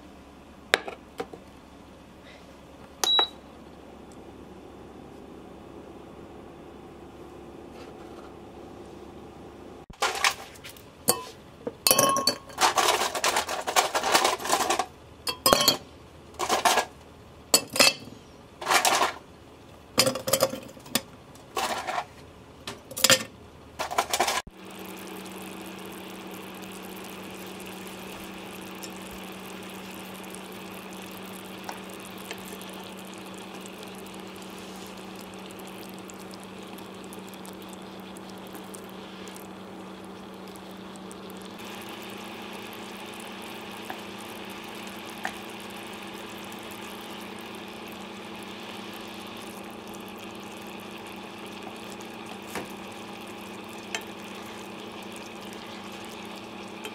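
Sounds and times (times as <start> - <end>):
ice cubes clinking in glass jug: 10.0 - 10.5, 11.9 - 15.8, 22.9 - 24.5
pan simmering with hiss: 20.6 - 56.9.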